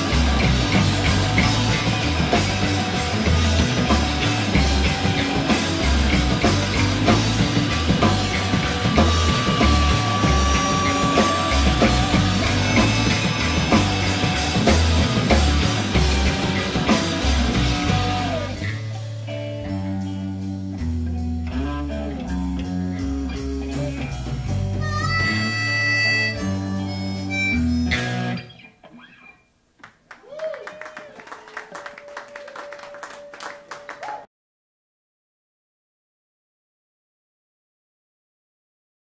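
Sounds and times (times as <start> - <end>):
drum kit: 0.0 - 28.4
bass line: 0.0 - 28.5
live rock band playing: 0.0 - 29.1.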